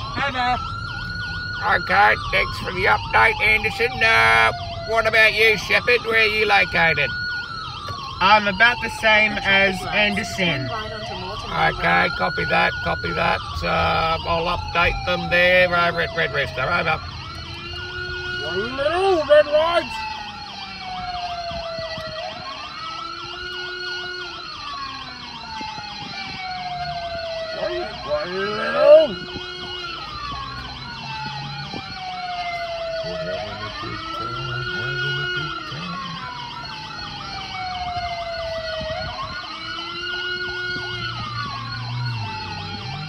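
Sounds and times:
emergency vehicle wail siren: 0:00.0 - 0:43.0.

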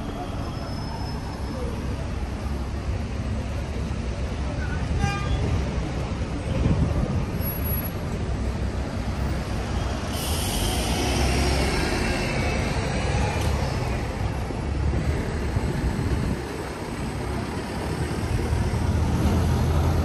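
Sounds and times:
traffic rumble: 0:00.0 - 0:20.0
vehicle hiss and whine: 0:07.4 - 0:20.0.

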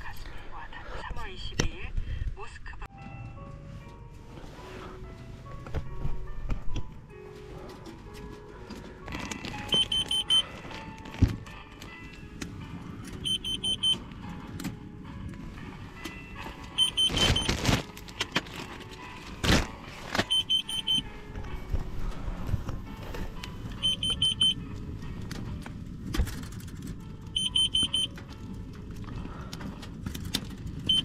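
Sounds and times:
high-pitched electronic beeps: 0:09.7 - 0:10.4, 0:13.3 - 0:14.0, 0:23.8 - 0:24.6.

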